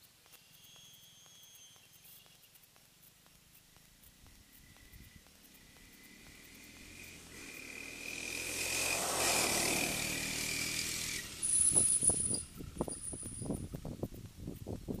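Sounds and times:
high-pitched whine with sharp knocks: 0.0s - 13.7s
three-wheeler engine driving past: 4.2s - 13.8s.

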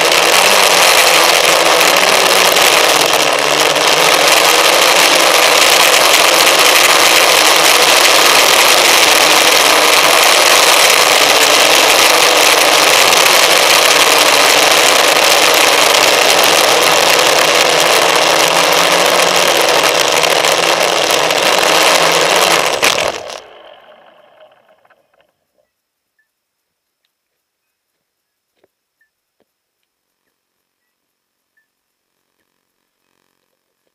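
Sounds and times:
model aircraft motor running: 0.0s - 25.3s.

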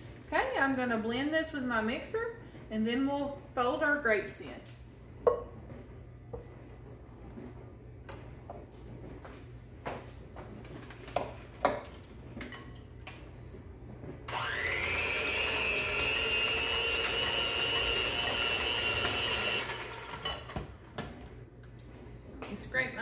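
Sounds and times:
electric hand mixer whine: 14.3s - 20.8s.

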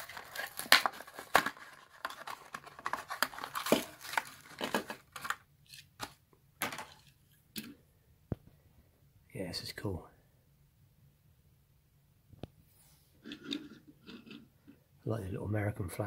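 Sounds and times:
plastic packaging crackling and tearing: 0.0s - 5.4s.

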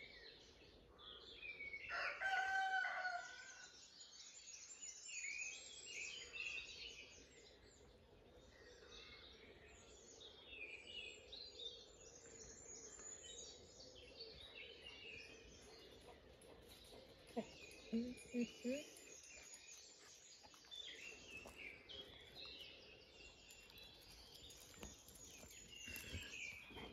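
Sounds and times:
songbirds chirping and singing: 0.0s - 26.9s
rooster crowing: 1.9s - 3.4s.

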